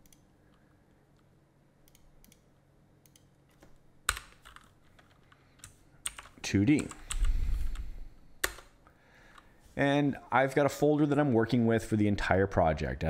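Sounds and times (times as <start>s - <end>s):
computer keyboard typing: 3.1s - 7.8s, 8.4s - 8.7s.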